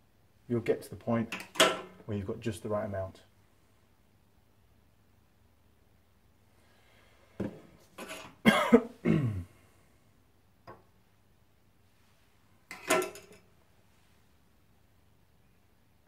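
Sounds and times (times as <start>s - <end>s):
man coughing: 8.4s - 9.6s.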